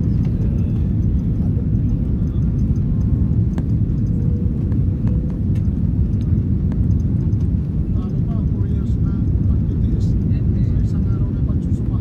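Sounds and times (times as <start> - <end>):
jet engine rumble in cabin: 0.0 - 12.0
faint clicks: 0.1 - 8.7.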